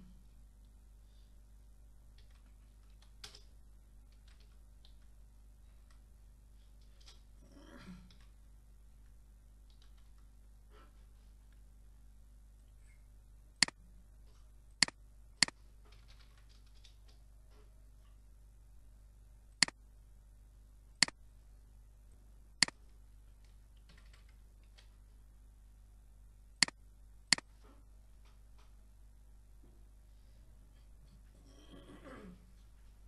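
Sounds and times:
low steady hum: 0.0s - 33.0s
faint keyboard typing: 2.0s - 7.3s, 9.0s - 10.4s, 13.6s - 18.2s, 22.6s - 25.1s
computer mouse clicking: 26.6s - 27.5s.

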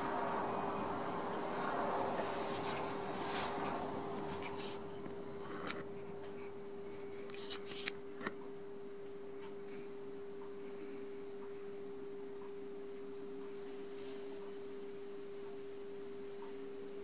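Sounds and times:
potter's wheel motor humming: 0.0s - 7.5s.

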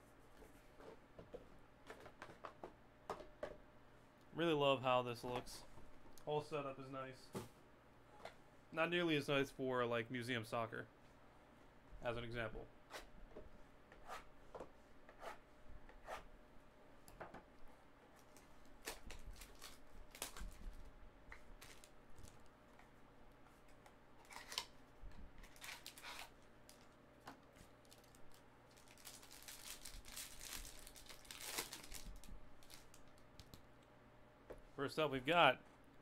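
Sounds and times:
cardboard and foil rustling: 18.3s - 20.8s, 21.6s - 21.9s, 25.4s - 26.8s, 27.8s - 33.0s.

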